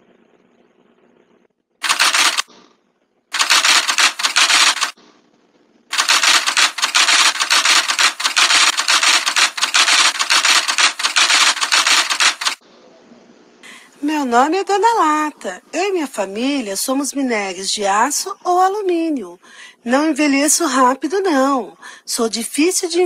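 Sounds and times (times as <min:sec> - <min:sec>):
typewriter keystrokes clicking: 0:01.8 - 0:02.5, 0:03.4 - 0:05.0, 0:05.9 - 0:12.6.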